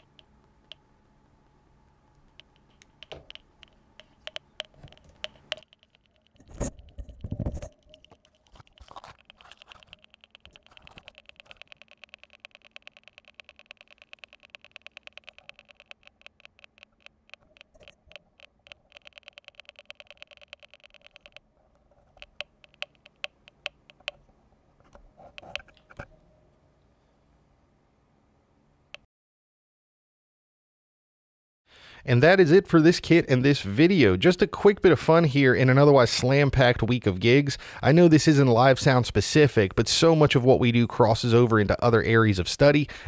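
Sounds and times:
speaker clicks with faint tone: 0:02.2 - 0:07.0, 0:07.8 - 0:21.4, 0:22.2 - 0:24.2.

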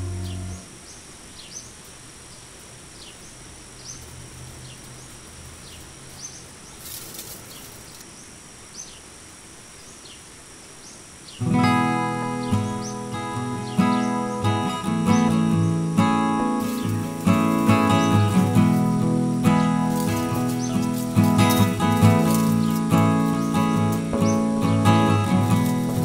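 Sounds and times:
acoustic guitar music: 0:00.0 - 0:00.7, 0:11.4 - 0:26.0
small bird chirping: 0:00.0 - 0:09.1, 0:09.7 - 0:26.0
brief rustle: 0:06.8 - 0:08.1, 0:19.9 - 0:24.1.

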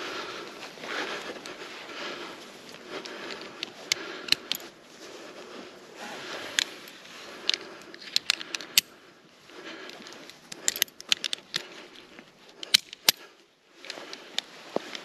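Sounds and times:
rustling of gear and fabric: 0:00.0 - 0:15.0
sharp clicks and crackles: 0:02.8 - 0:04.7, 0:06.5 - 0:09.0, 0:09.8 - 0:15.0.

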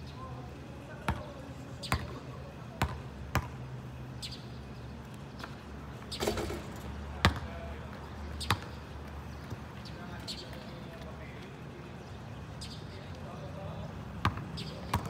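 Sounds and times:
basketball bouncing on asphalt: 0:01.0 - 0:04.4, 0:05.4 - 0:09.7, 0:14.2 - 0:15.0
ball rattling on hoop: 0:06.2 - 0:06.9.

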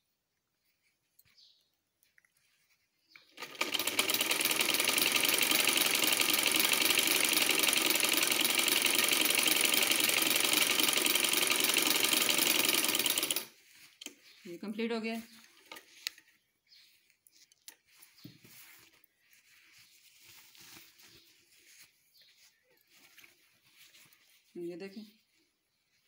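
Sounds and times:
sewing machine stitching: 0:03.3 - 0:13.5.

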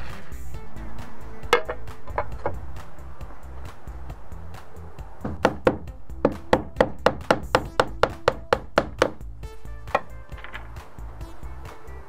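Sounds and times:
background music: 0:00.0 - 0:12.0
hammer striking roofing slate: 0:05.2 - 0:09.2.

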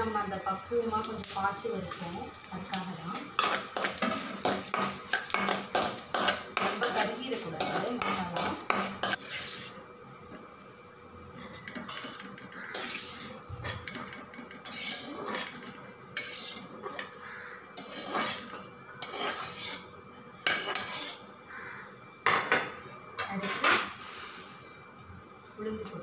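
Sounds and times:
spoon scraping metal pan: 0:03.2 - 0:09.9, 0:11.3 - 0:21.3.

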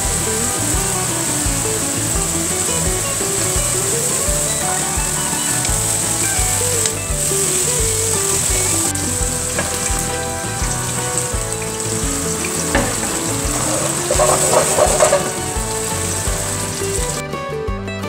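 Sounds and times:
meat sizzling in a pan: 0:00.0 - 0:17.2
background music: 0:00.0 - 0:18.0
wooden spoon stirring: 0:08.0 - 0:17.2.

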